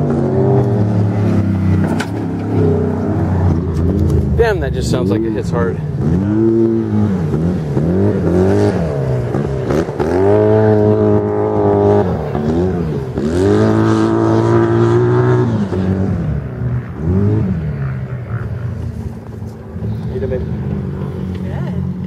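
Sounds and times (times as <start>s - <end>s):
engine revving hard: 2.6s - 16.3s.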